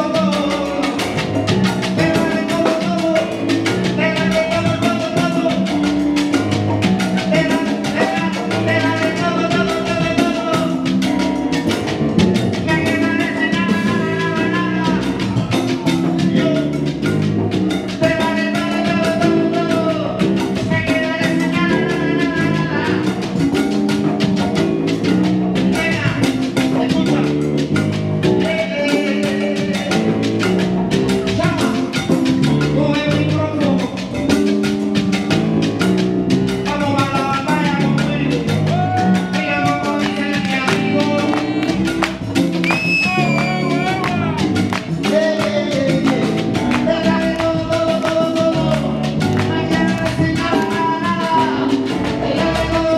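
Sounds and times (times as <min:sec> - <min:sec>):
live salsa band: 0:00.0 - 0:52.9
lead singer singing: 0:07.3 - 0:10.9, 0:36.8 - 0:52.9.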